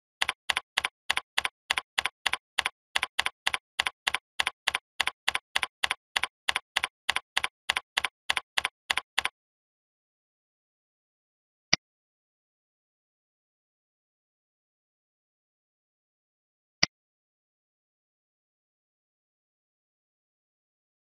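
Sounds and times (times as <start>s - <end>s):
keyboard keystrokes: 0.2s - 9.3s.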